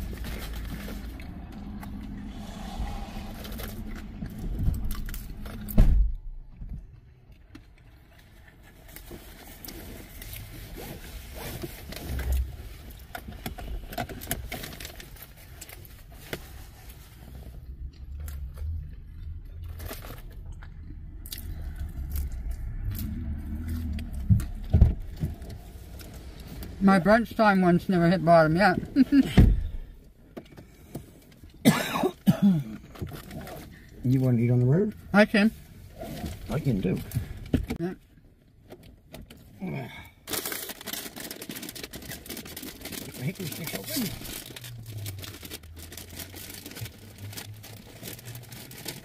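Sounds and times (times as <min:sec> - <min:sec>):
low rumble: 0:00.0 - 0:08.0, 0:14.7 - 0:30.2.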